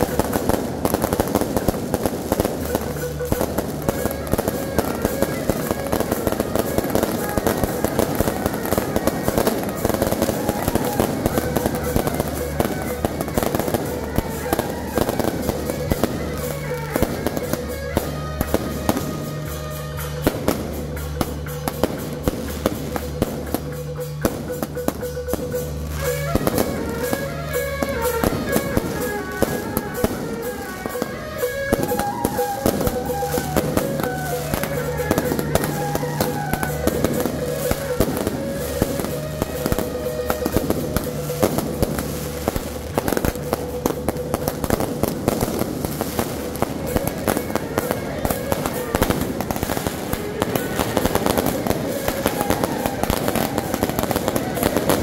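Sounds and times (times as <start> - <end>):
fireworks launching and bursting: 0.0 - 55.0
music: 0.0 - 55.0.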